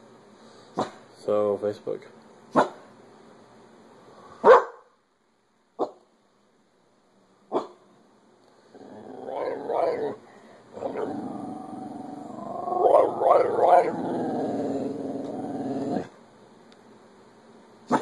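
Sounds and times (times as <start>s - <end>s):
dog barking: 0.8s - 1.0s, 2.5s - 2.9s, 4.4s - 4.9s, 5.8s - 6.0s, 7.5s - 7.8s
dog growling and whining: 8.7s - 16.2s.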